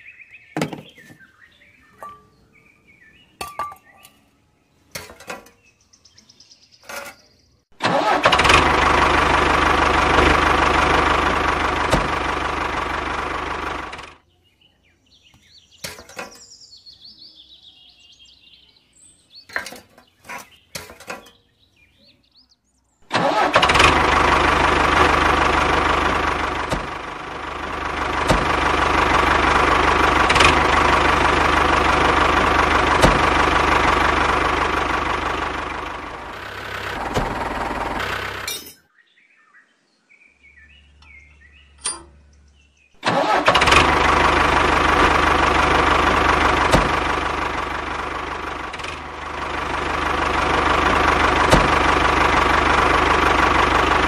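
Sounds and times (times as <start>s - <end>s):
model tractor motor droning: 7.8s - 14.2s, 23.1s - 38.6s, 43.0s - 54.0s.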